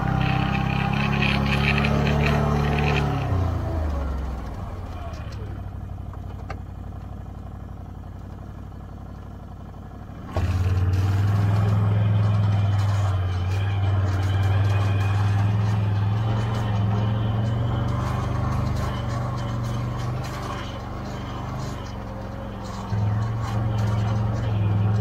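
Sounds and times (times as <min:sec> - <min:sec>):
atv engine running: 0:00.0 - 0:25.0.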